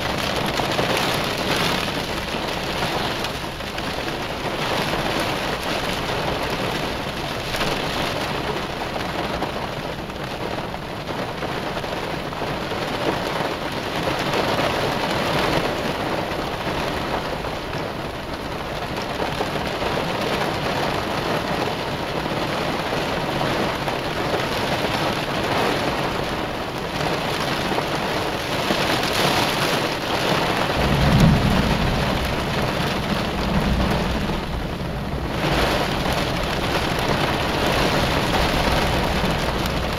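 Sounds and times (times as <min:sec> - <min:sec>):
heavy rain: 0:00.0 - 0:39.9
low thunder rumble: 0:29.9 - 0:39.9.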